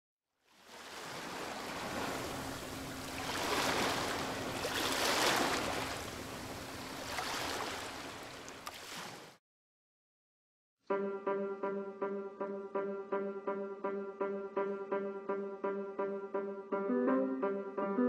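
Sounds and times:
rushing water: 0.6 - 9.4.

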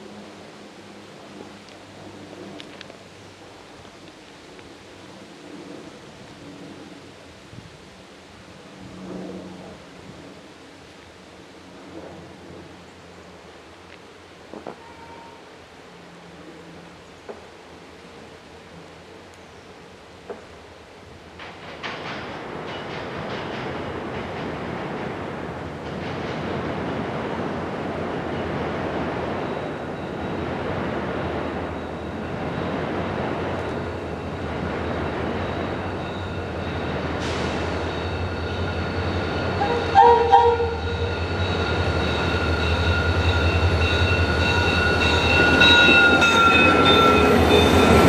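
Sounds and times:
diesel locomotive engine rumble: 0.0 - 48.0
train wheel noise: 8.5 - 13.1, 20.1 - 48.0
high wheel squeal: 33.8 - 48.0
train horn blast: 39.6 - 41.2.

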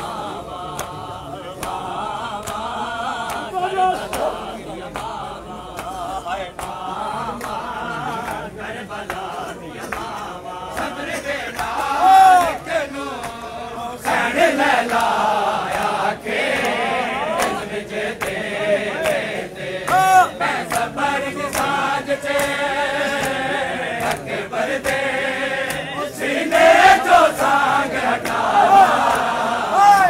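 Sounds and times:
men chanting a lament: 0.0 - 30.0
hands slapping bare chests: 0.7 - 1.0, 9.1 - 16.8, 17.4 - 29.4.

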